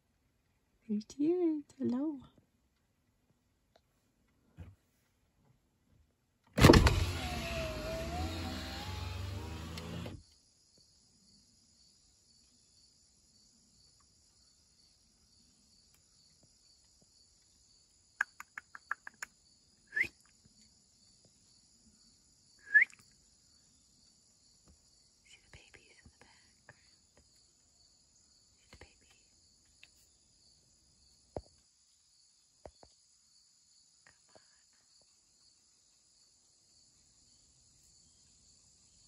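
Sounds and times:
motorised whir: 6.6 - 10.2.

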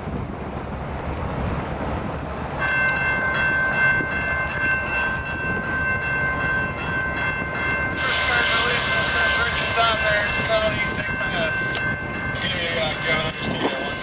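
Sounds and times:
diesel locomotives rumbling: 0.0 - 14.0
locomotive air horn chord: 8.0 - 11.4.

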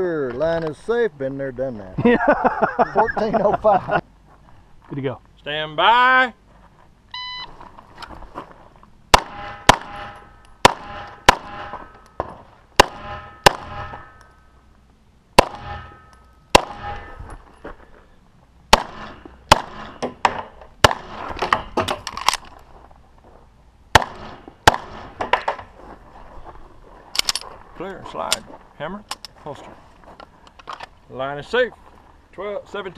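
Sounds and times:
pistol shots: 9.1 - 11.9, 12.8 - 14.1, 15.4 - 17.2, 18.7 - 20.1, 20.8 - 21.8, 23.9 - 25.2.

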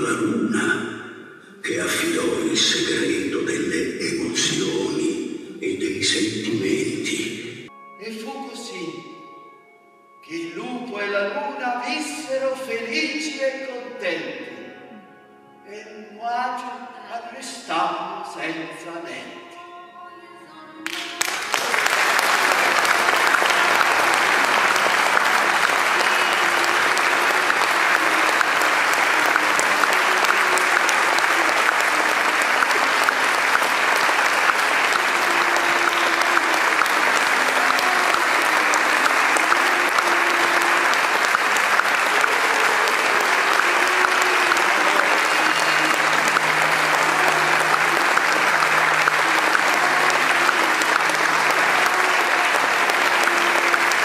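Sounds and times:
audience applauding: 1.6 - 7.4, 20.9 - 54.0.

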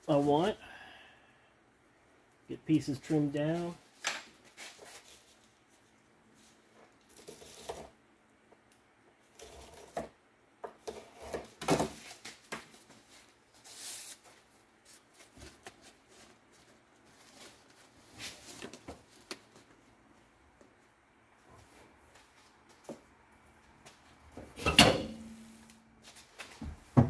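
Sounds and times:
cardboard rustling and scraping: 10.8 - 19.7.

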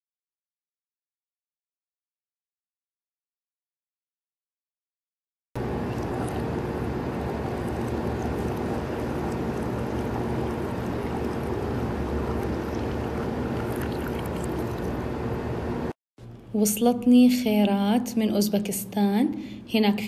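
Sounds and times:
tea pouring into bowl: 5.6 - 15.1.

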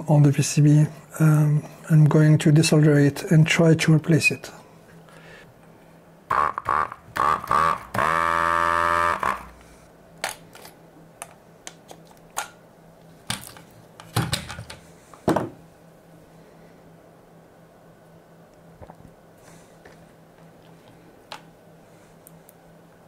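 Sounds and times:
desoldering pump buzz: 6.3 - 9.8.

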